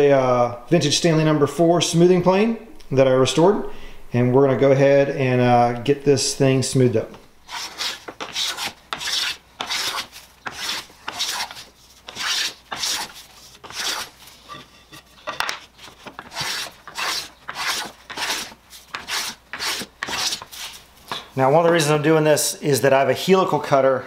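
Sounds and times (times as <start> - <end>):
hand plane shaving wood: 7.5 - 14.4, 15.7 - 20.8.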